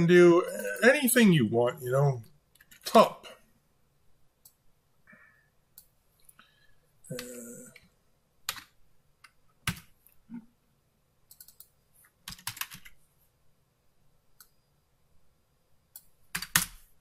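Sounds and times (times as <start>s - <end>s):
computer keyboard typing: 9.6s - 9.9s, 11.3s - 13.0s, 16.0s - 16.8s.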